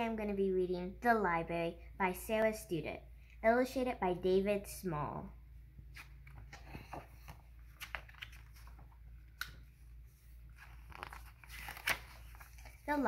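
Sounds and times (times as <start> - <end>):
book pages rustling: 5.9 - 13.0.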